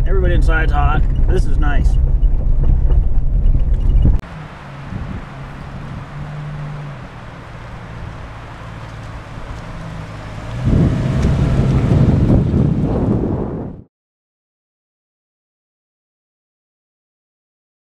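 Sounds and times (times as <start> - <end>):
car engine driving past: 1.1 - 13.8.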